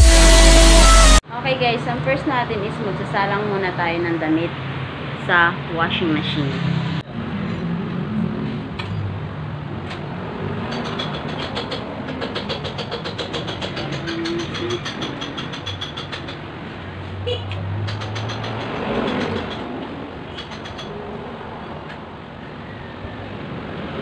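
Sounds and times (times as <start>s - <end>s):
machines humming: 0.0s - 1.2s
rapid rattling clatter: 10.7s - 16.4s.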